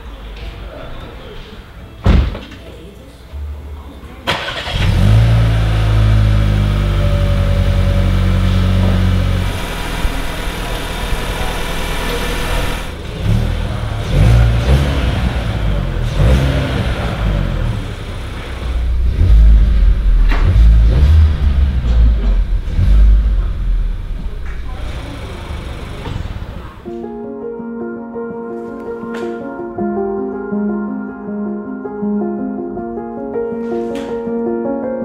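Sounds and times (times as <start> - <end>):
car engine starting and idling: 4.2 - 26.9
engine revving in blips: 4.4 - 26.8.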